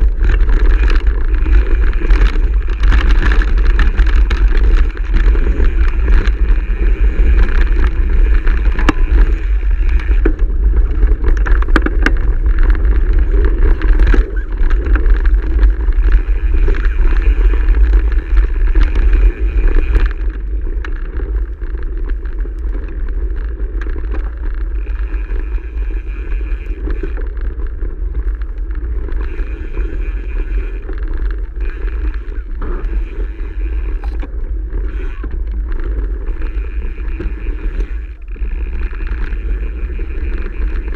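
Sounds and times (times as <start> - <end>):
bike rattling over stones: 0.0 - 40.9
bike tyre rumble on gravel: 0.0 - 40.9
wind buffeting microphone: 0.0 - 40.9.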